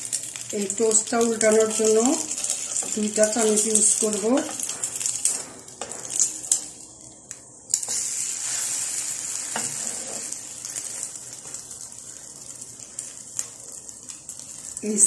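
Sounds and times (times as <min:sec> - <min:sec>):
toast sizzling in oil: 0:00.0 - 0:15.0
utensils tapping pan: 0:00.1 - 0:06.8, 0:09.4 - 0:11.6.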